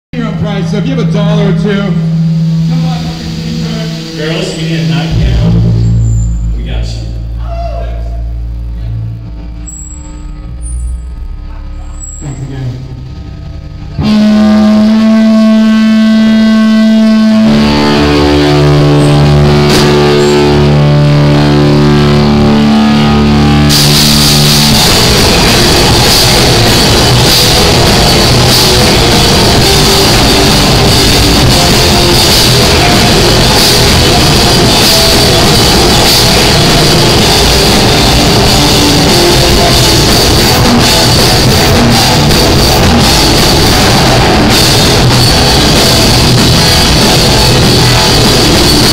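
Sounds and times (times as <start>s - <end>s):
low bass notes: 0.0s - 48.9s
electric guitars ringing chords: 0.2s - 48.9s
drums and cymbals: 1.9s - 8.9s, 17.1s - 48.9s.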